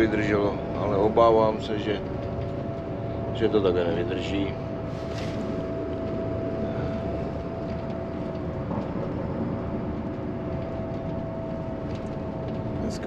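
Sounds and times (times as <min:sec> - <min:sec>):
bus engine and road rumble: 0:00.0 - 0:13.0
high engine whine: 0:00.0 - 0:13.0.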